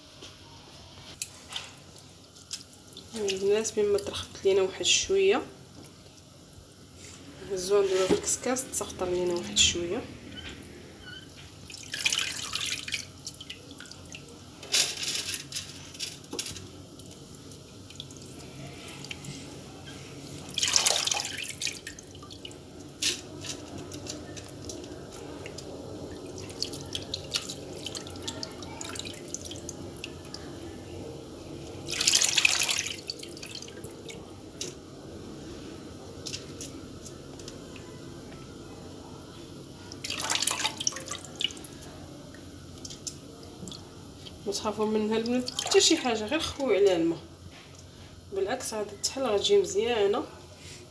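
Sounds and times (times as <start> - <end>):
water dripping and splashing: 1.9 - 4.3, 11.6 - 14.4, 16.9 - 19.3, 20.5 - 30.6, 31.8 - 34.8, 39.9 - 44.4, 45.2 - 45.9.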